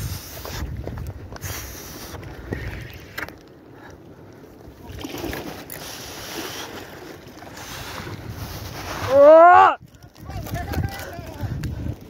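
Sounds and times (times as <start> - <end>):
wind buffeting microphone: 0.0 - 3.3, 6.8 - 12.0.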